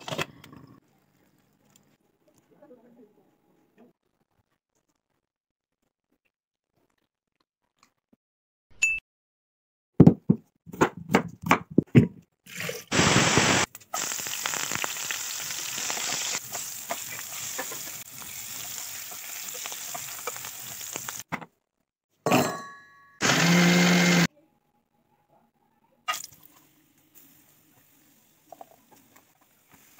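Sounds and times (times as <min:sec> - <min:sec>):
potatoes frying in hot oil: 0:12.9 - 0:21.3
mixer grinder motor whine: 0:23.2 - 0:24.3.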